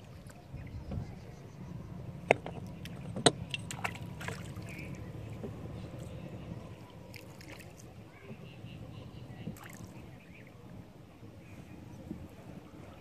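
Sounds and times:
rumble of water and wind: 0.0s - 13.0s.

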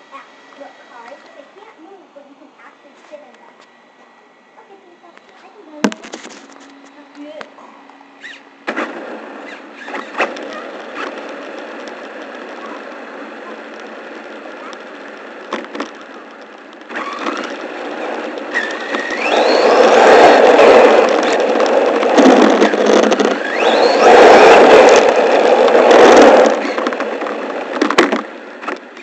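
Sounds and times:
electric motor whining: 4.6s - 29.0s
rushing noise on asphalt: 8.6s - 29.0s.

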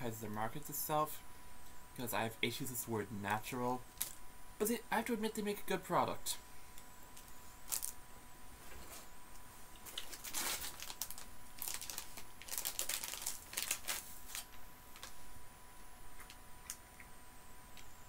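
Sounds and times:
plastic packet crinkling: 7.6s - 8.0s, 9.8s - 15.2s.

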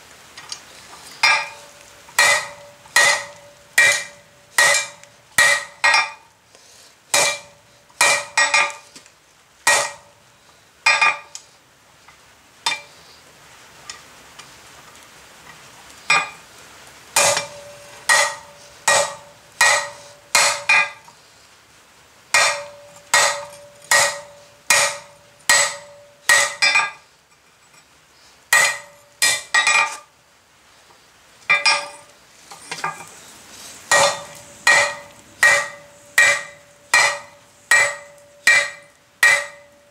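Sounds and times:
hammer striking steel on anvil: 1.2s - 6.2s, 7.1s - 8.8s, 9.7s - 10.1s, 10.9s - 11.4s, 12.7s - 12.9s, 17.2s - 21.0s, 22.4s - 27.0s, 28.5s - 30.0s, 31.5s - 32.1s, 33.9s - 39.9s.

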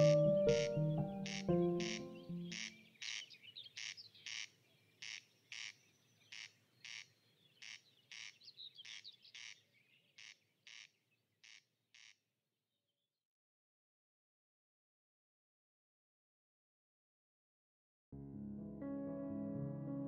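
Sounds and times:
background music: 0.0s - 2.8s, 18.2s - 20.0s
corncrake calling: 0.0s - 9.6s.

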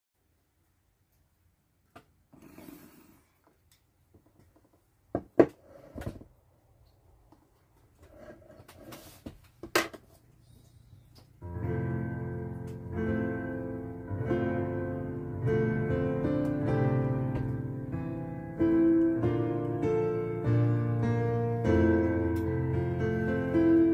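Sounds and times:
digital piano chords: 11.3s - 23.9s.

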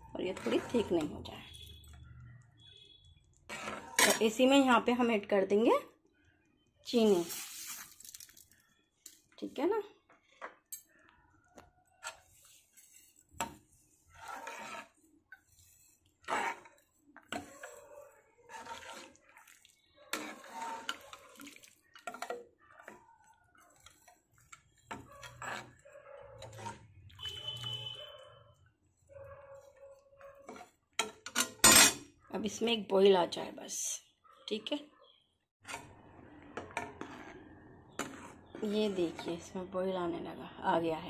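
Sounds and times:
ladle scraping and clinking pan: 0.2s - 1.3s, 3.5s - 4.4s, 12.0s - 23.0s, 23.7s - 27.8s, 36.5s - 39.5s
liquid sloshing in a pan: 0.2s - 4.5s, 11.9s - 31.6s, 35.6s - 39.5s.

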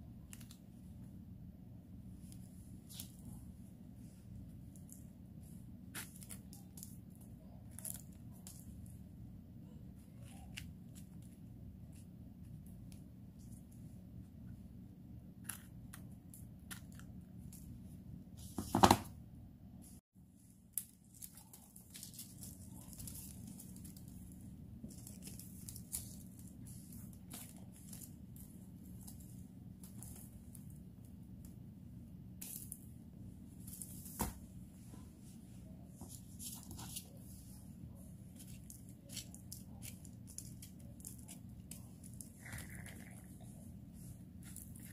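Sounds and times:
low steady hum: 0.0s - 44.9s
crunch: 20.7s - 30.8s, 38.3s - 43.5s, 44.4s - 44.9s.

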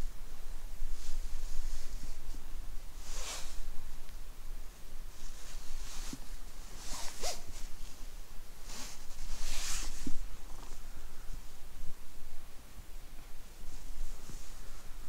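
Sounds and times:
glove rubbing cat fur: 5.3s - 8.0s.

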